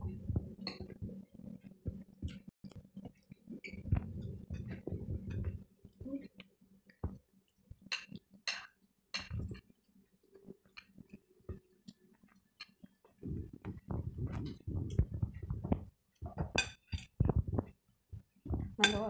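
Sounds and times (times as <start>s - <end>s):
cutlery and dishes clinking: 7.9s - 9.6s, 16.3s - 17.2s, 18.6s - 19.0s.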